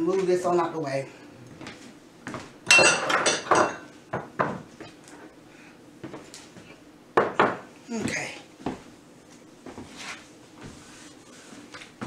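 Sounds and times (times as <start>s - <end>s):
dishes and utensils clattering: 2.7s - 4.6s.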